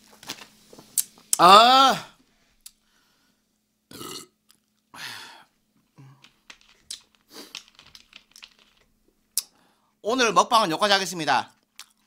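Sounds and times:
man burping: 3.9 - 4.4.

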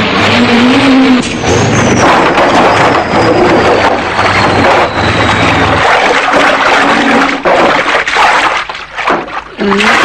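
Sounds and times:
heavy truck running: 0.0 - 6.0.

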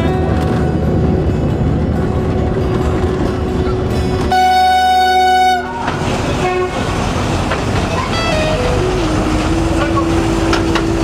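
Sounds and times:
train running: 0.0 - 11.0
locomotive horn blast: 4.2 - 7.0, 7.9 - 11.0.

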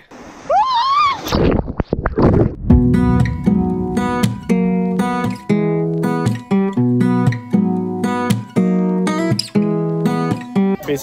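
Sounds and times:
strummed acoustic guitar: 2.7 - 10.7.

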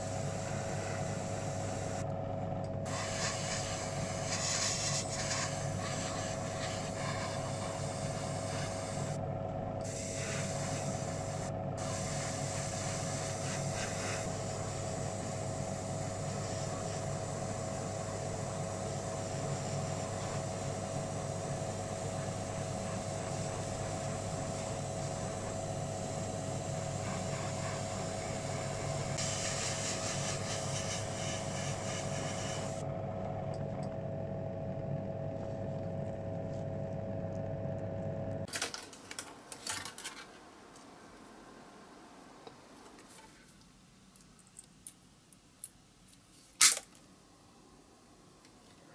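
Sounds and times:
airbrush hissing: 0.0 - 2.0, 2.9 - 9.2, 9.8 - 32.8
air compressor humming: 0.0 - 38.6.

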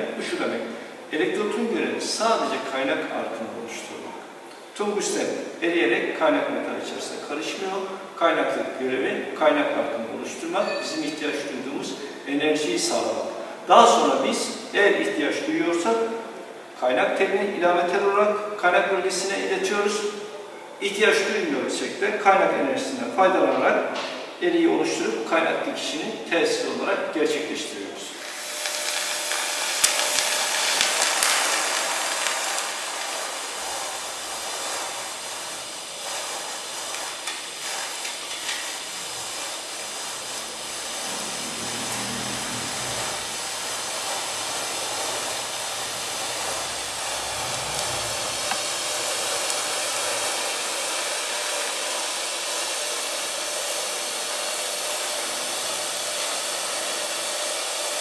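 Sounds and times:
welding arc hissing: 28.1 - 58.0.

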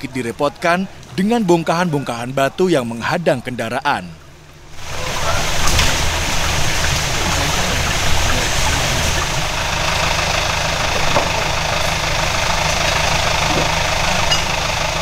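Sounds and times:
engine idling: 4.3 - 15.0
rushing hiss: 4.7 - 15.0.

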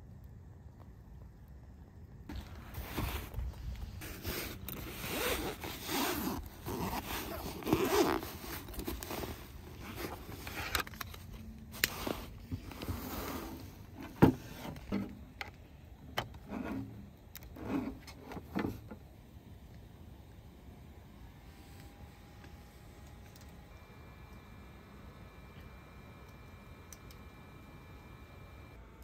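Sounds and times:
rustling: 2.3 - 15.2
zipper rasping: 4.0 - 10.6.

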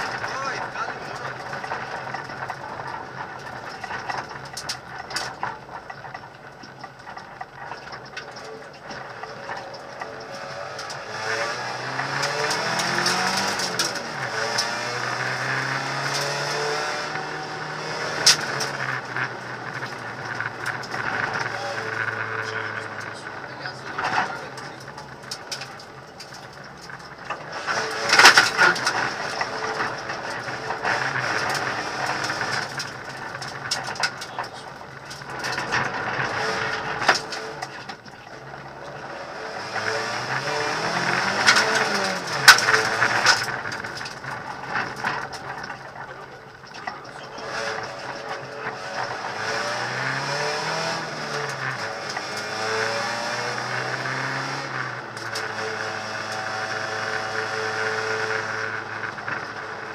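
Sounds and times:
car engine running: 0.0 - 59.9
gravel crunching under tyres: 0.0 - 59.9
stones rattling against car: 0.0 - 59.9.

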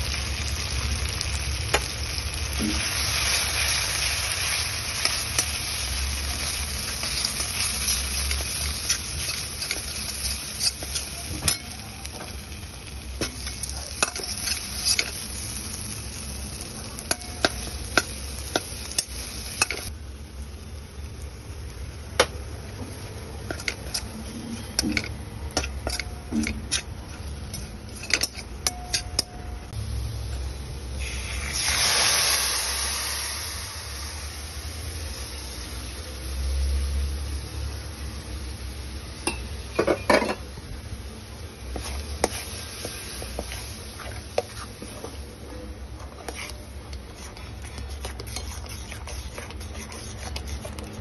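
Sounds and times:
hissing sizzle in hot pan: 0.0 - 21.9, 29.7 - 39.4, 41.2 - 45.2
spatula scraping steel pan: 46.0 - 51.0.

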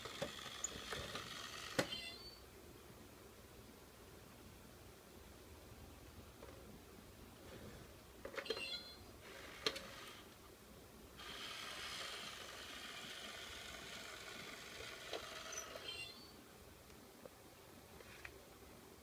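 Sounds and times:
small electric motor whirring: 0.0 - 2.0, 11.2 - 16.0.

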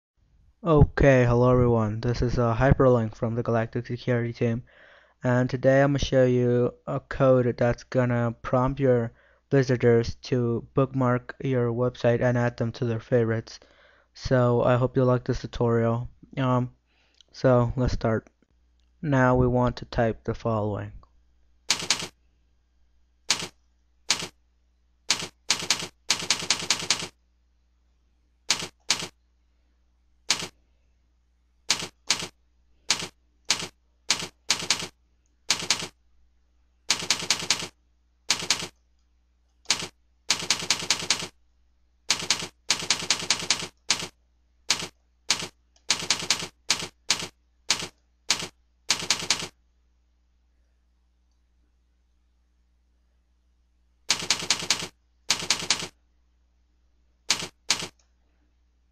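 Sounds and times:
typewriter keystrokes: 21.7 - 22.1, 23.3 - 24.3, 25.1 - 27.1, 28.5 - 29.1, 30.3 - 30.5, 31.7 - 32.3, 32.9 - 34.9, 35.5 - 35.9, 36.9 - 37.7, 38.3 - 38.8, 39.7 - 41.3, 42.1 - 44.1, 44.7 - 49.5, 54.1 - 55.9, 57.3 - 58.0.

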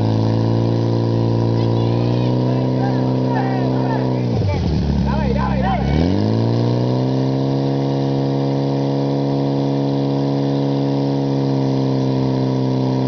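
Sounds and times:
fire pump engine at high revs: 0.0 - 13.0.

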